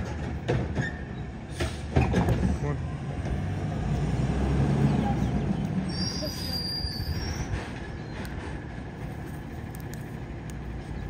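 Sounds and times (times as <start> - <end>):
high brake squeal: 5.8 - 7.8.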